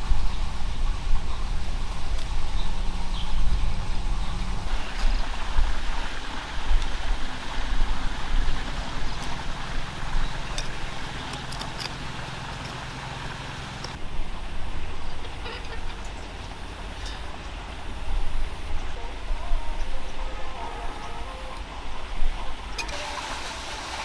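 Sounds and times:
low engine hum: 0.0 - 22.8
hand tool scraping soil: 10.3 - 13.1.

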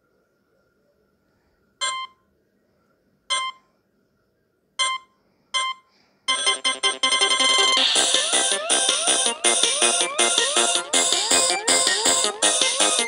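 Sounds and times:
electronic ringtone tune: 5.6 - 13.0.

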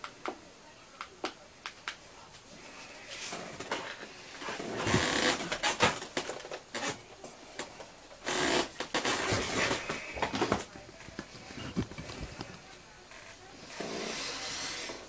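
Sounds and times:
microphone handling noise: 8.3 - 12.8.

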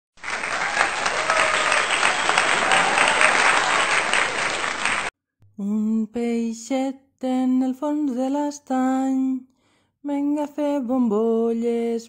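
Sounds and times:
crowd applause: 0.1 - 5.1
woman singing: 5.6 - 12.0.

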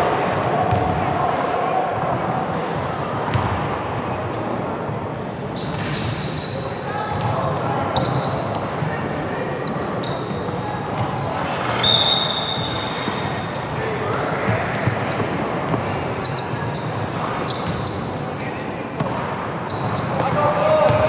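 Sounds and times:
players' voices: 0.0 - 21.0
basketball bouncing on court: 0.7 - 1.0, 3.3 - 3.7, 13.0 - 18.2, 18.9 - 21.0
trainers squeaking on floor: 5.6 - 21.0.

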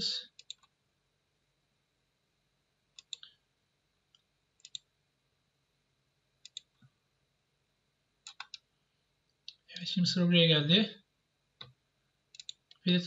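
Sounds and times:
faint mouse clicks: 0.3 - 0.7, 3.0 - 3.4, 4.1 - 4.9, 6.4 - 6.9, 8.2 - 8.7, 12.4 - 12.8.

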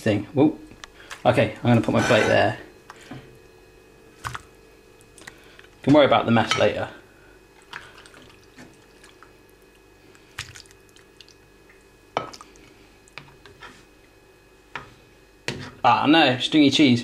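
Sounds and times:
spatula scraping ceramic dish: 1.8 - 2.6
wet squishing of food: 4.1 - 5.9, 7.5 - 13.5.

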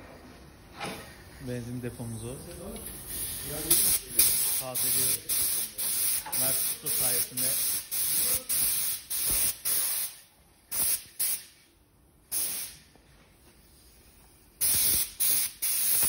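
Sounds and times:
spray can hissing: 3.0 - 11.5, 12.3 - 12.8, 14.6 - 16.0.

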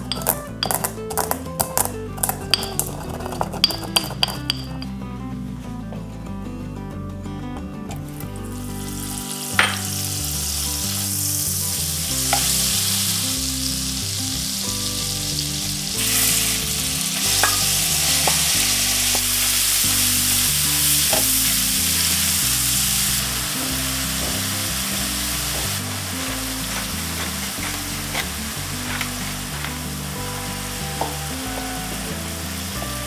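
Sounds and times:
butter sizzling in oil: 8.5 - 33.0
wooden spatula pushing meat: 25.6 - 29.9.

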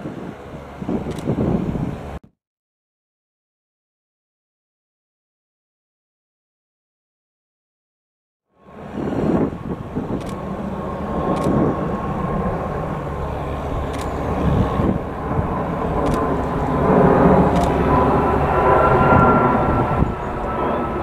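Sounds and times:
jet plane flying overhead: 0.0 - 2.2, 8.5 - 21.0.

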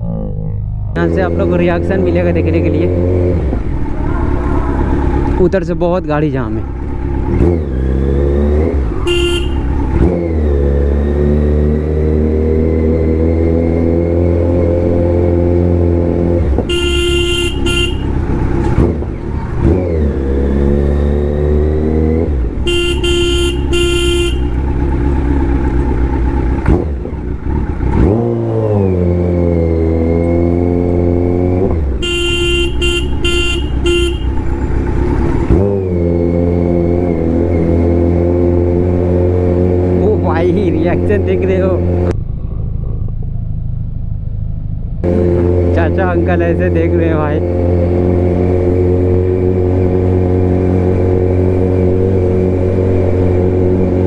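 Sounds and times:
motorcycle engine idling and revving: 0.0 - 54.0
vehicle horn honking: 9.0 - 9.8, 16.6 - 18.3, 22.6 - 24.6, 32.0 - 34.6.

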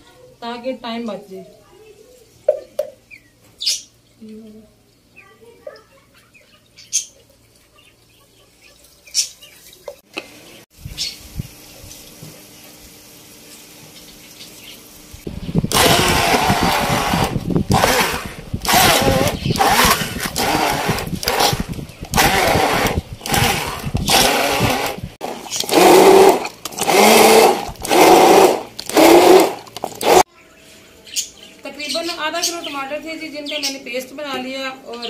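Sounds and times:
hand blender whirring: 15.7 - 30.3.

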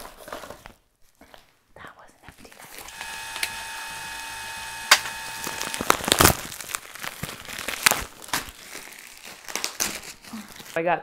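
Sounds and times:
steady electronic tone: 2.9 - 6.1
plastic wrap crinkling: 4.6 - 11.0
sharp click: 4.9 - 5.2.

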